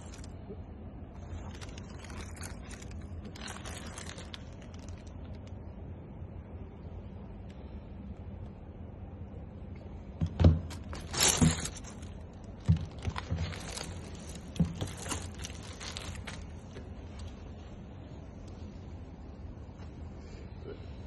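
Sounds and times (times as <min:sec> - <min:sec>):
plastic bag and paper crinkling: 0:00.0 - 0:00.4, 0:01.1 - 0:05.7, 0:10.2 - 0:17.8.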